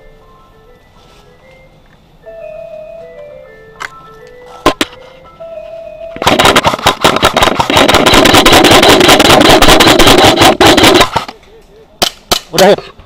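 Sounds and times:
airsoft gun firing: 0:06.2 - 0:11.4.

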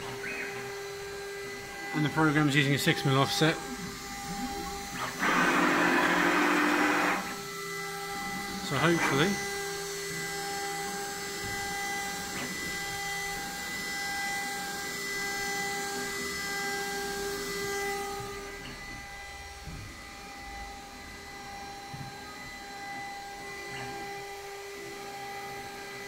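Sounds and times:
router spindle motor whining: 0:00.0 - 0:26.0.

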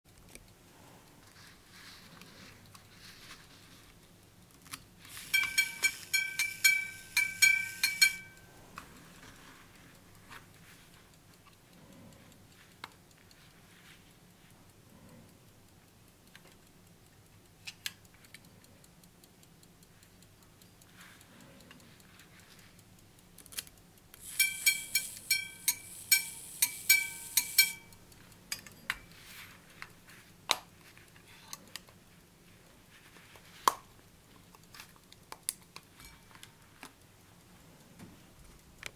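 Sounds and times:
small mechanical watch clicks: 0:01.3 - 0:37.3
watch chime notes: 0:05.3 - 0:08.4, 0:24.3 - 0:27.9.

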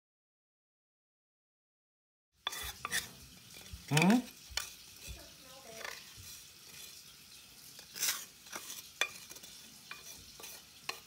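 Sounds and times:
spatula scraping metal saucepan: 0:02.4 - 0:11.0.

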